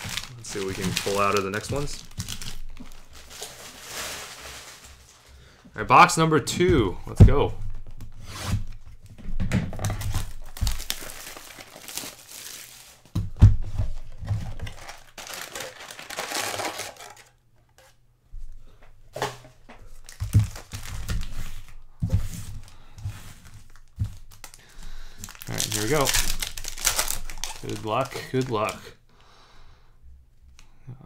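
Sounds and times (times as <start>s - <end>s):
plastic wrapping crinkling and tearing: 0.0s - 5.4s, 9.7s - 13.2s, 13.8s - 17.4s, 19.9s - 22.8s, 23.4s - 28.9s.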